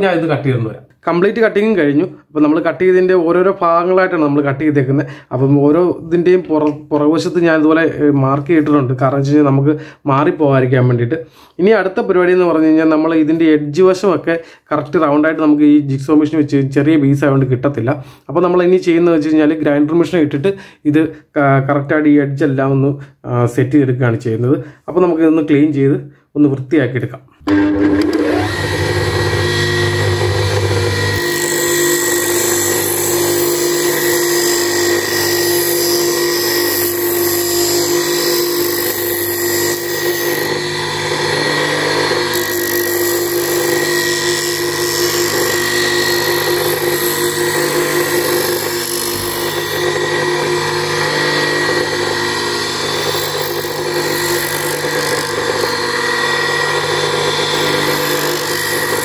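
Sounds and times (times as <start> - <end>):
bench grinder whining: 27.4 - 59.0
grinding wheel on wood pieces: 27.5 - 59.0.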